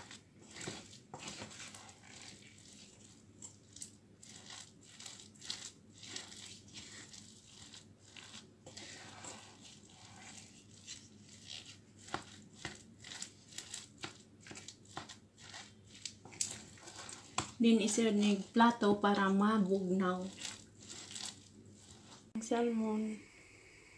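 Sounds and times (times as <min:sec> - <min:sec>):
rice paddle scraping a pot: 0:00.0 - 0:22.4.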